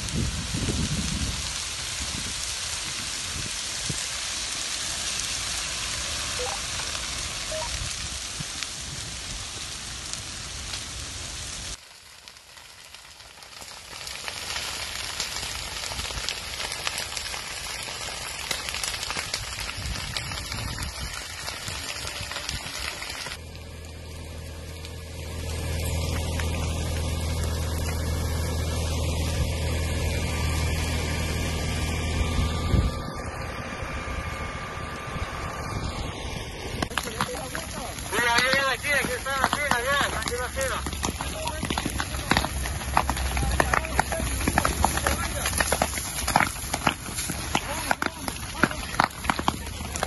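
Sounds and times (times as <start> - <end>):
dry grass and brush burning: 0.0 - 50.0
low engine hum: 17.2 - 50.0.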